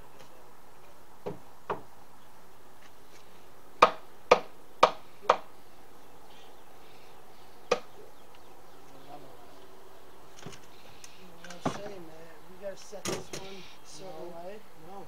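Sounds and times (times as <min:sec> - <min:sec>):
hammer striking wood: 0:01.2 - 0:01.9, 0:03.8 - 0:05.5, 0:07.7 - 0:07.9.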